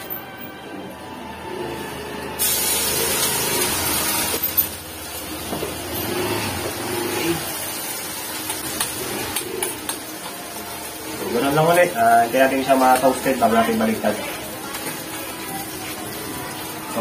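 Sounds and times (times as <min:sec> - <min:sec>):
batter sizzling in hot oil: 0:02.3 - 0:17.0.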